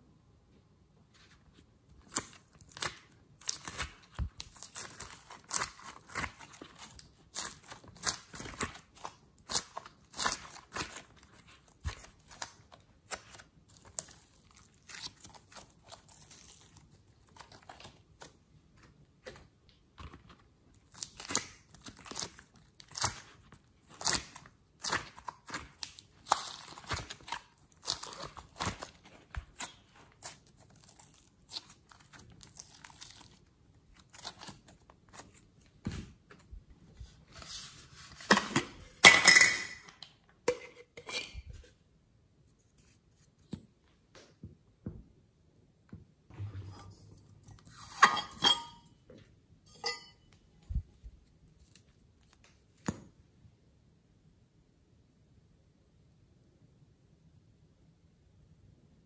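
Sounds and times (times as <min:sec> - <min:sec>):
hands squeezing sticky slime: 0:02.0 - 0:18.4, 0:20.8 - 0:35.9.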